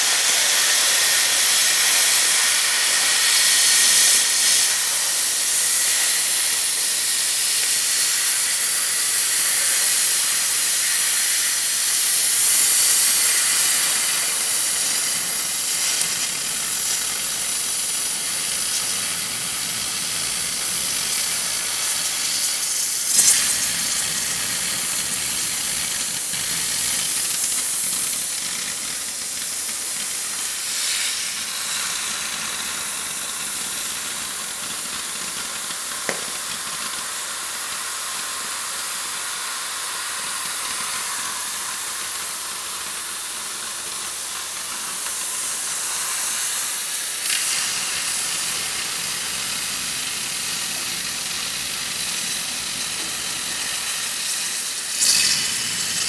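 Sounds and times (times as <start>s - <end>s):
cutting torch hissing: 0.0s - 56.0s
torch popping: 36.0s - 36.9s.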